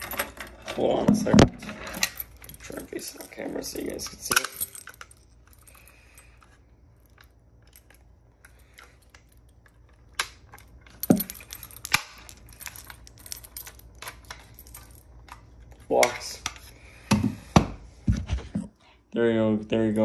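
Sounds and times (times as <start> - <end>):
keys jingling: 1.6 - 16.1.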